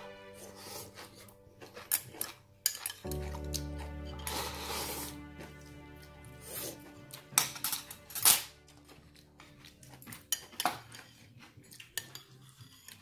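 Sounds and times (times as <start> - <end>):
background music: 0.0 - 10.9
spoons clinking on ceramic bowls: 1.6 - 3.4, 11.8 - 13.0.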